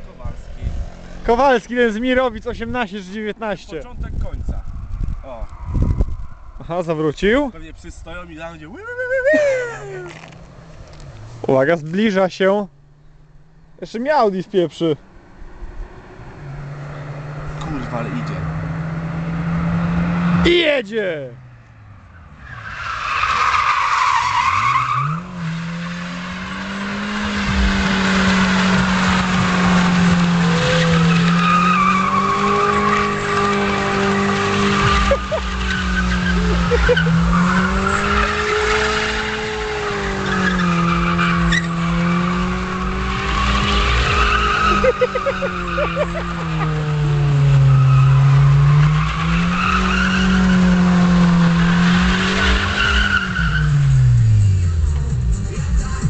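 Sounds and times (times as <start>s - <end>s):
tyres squealing on asphalt: 0.0s - 54.8s
car engine revving high: 15.4s - 20.7s, 22.2s - 55.6s.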